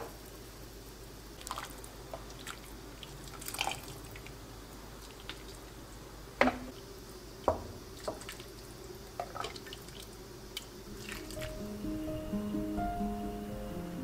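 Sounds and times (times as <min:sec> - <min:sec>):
broth dripping and splashing: 0:01.3 - 0:05.8, 0:07.4 - 0:11.6.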